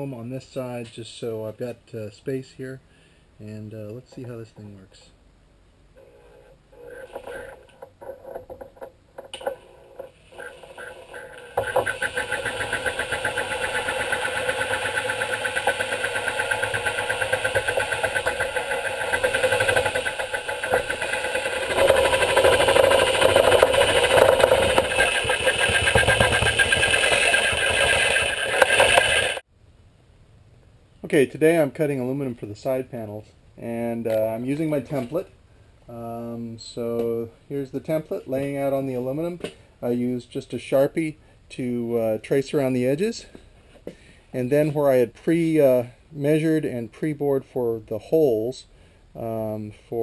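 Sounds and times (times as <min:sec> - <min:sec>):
electric shears cutting sheet metal: 0:09.3 - 0:29.4.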